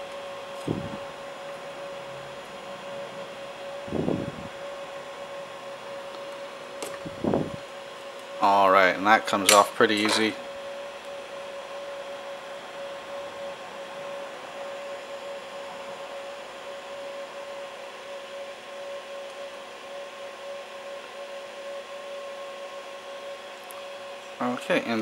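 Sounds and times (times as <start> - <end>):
cooling fan whirring: 0.0 - 25.0.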